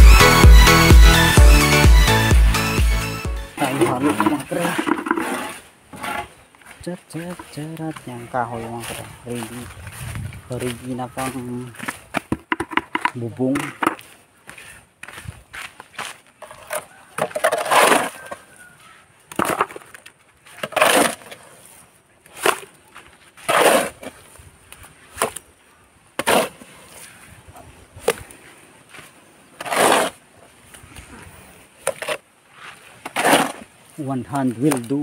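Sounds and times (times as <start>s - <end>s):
shovel scraping concrete: 3.6s - 6.4s, 16.4s - 18.4s, 19.3s - 22.8s, 23.4s - 24.2s, 26.2s - 27.2s, 29.6s - 30.2s, 31.8s - 33.7s.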